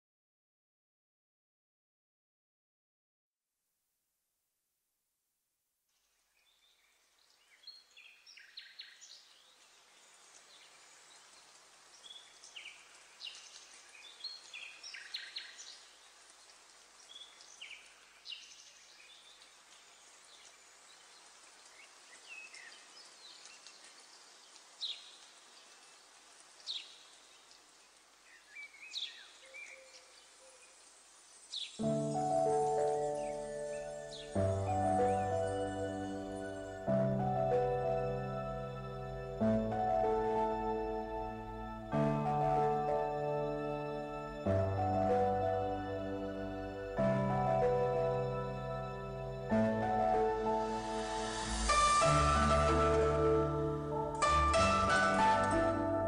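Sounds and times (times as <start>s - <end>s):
steady hiss: 6.0s - 56.0s
birds chirping: 6.4s - 39.3s.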